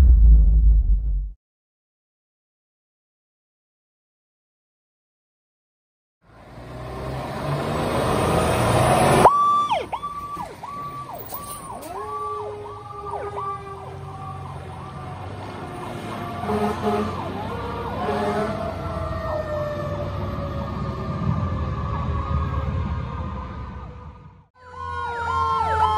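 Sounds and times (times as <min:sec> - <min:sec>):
fire engine siren yelping: 0:07.6 - 0:25.9
lower siren tone falling: 0:08.6 - 0:16.5, 0:17.2 - 0:25.9
short horn blasts: 0:16.4 - 0:17.2, 0:18.0 - 0:18.6.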